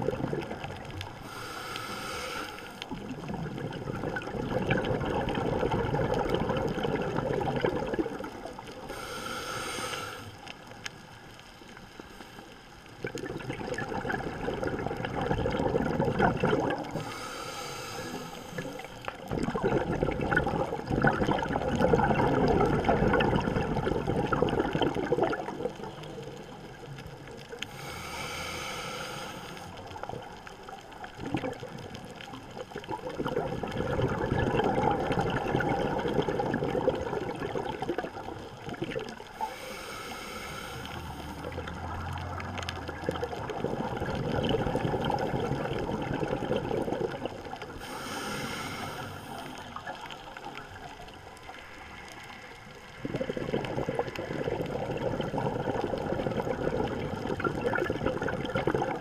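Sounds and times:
exhaled bubbles rushing: 0.0 - 1.2, 2.8 - 8.9, 12.9 - 17.1, 18.2 - 27.6, 29.8 - 39.4, 40.7 - 47.9, 48.8 - 59.0
regulator inhale hiss: 1.1 - 3.0, 8.8 - 10.6, 16.9 - 19.2, 27.6 - 29.8, 39.3 - 41.5, 47.7 - 50.5.

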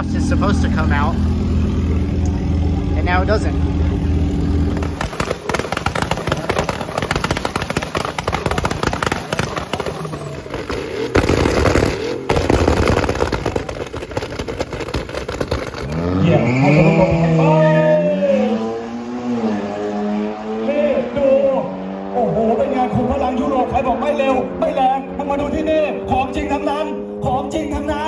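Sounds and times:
car engine revving: 0.0 - 28.0
exhaust pops and bangs: 4.5 - 17.8.

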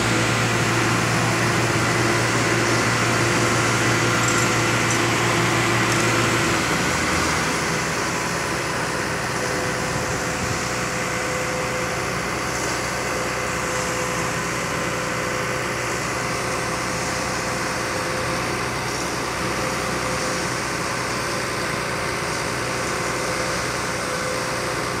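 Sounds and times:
concrete mixer truck engines: 0.0 - 25.0.

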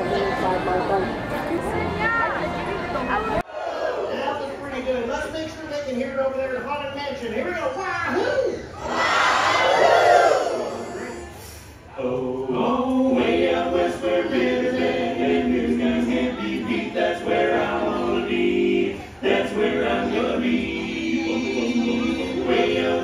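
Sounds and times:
choir singing long notes: 8.8 - 11.3, 12.0 - 23.0.

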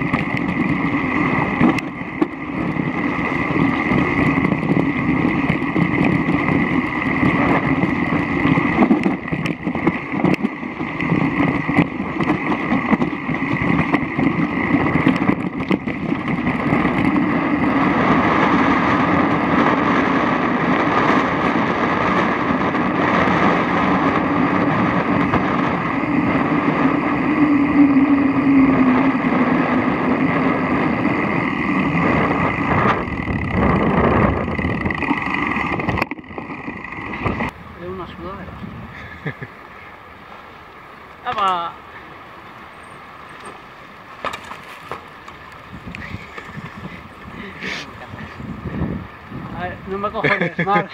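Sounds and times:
bike rattling on gravel: 0.0 - 38.2, 40.1 - 50.9
tyre and wind noise: 0.0 - 50.9.

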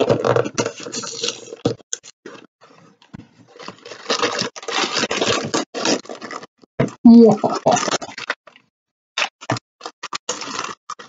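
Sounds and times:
food packaging crinkling: 0.0 - 2.8, 3.5 - 6.5, 9.2 - 11.0.

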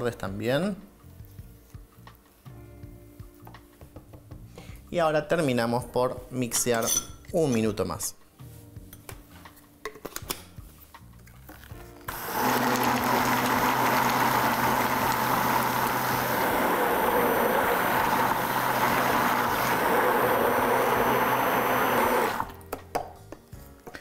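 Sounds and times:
immersion blender motor whirring: 12.1 - 22.6.

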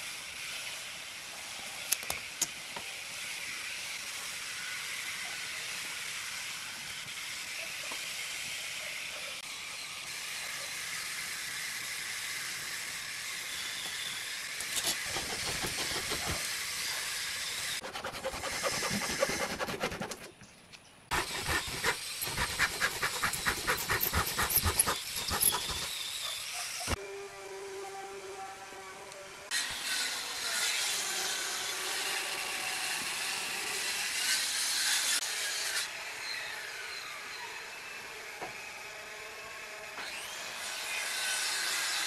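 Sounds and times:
hand saw cutting plywood: 14.6 - 20.4, 21.1 - 27.0.

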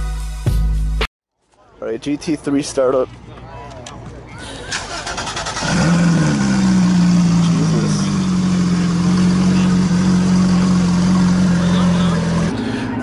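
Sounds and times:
car engine starting and idling: 4.6 - 13.0.

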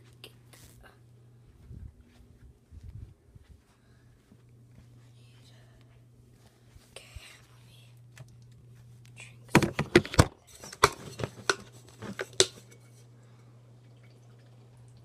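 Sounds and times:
low hum: 0.0 - 15.0
handling clicks and knocks: 9.5 - 12.6.

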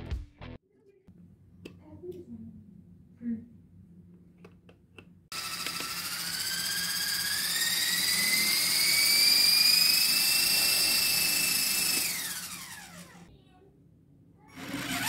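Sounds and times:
model helicopter motors whining: 5.3 - 13.3, 14.5 - 15.0.

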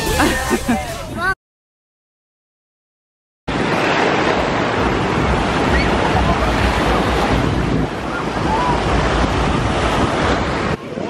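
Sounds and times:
small waves breaking on shore: 3.5 - 11.0
wind buffeting microphone: 3.5 - 11.0.

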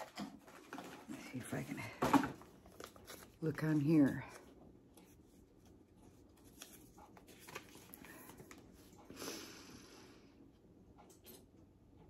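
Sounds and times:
paper rustle: 2.4 - 8.9.

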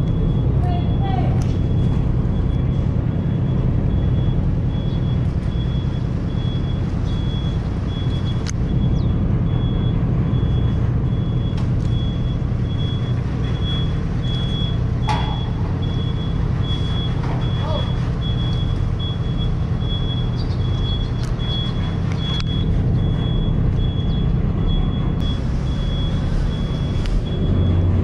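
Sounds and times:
ship engines rumbling: 0.0 - 28.0.

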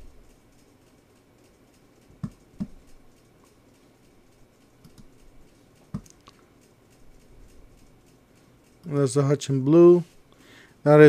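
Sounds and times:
computer mouse clicks: 0.2 - 9.0.

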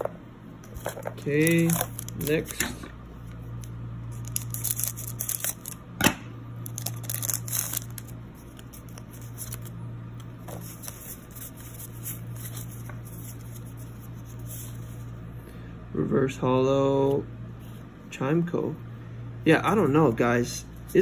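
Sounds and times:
foil crinkling: 0.8 - 2.6, 4.1 - 5.8, 6.6 - 9.7.

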